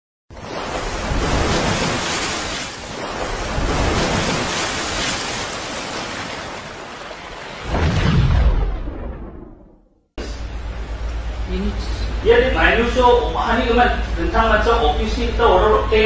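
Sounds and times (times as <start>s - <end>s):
deep boom: 7.7s - 10.4s.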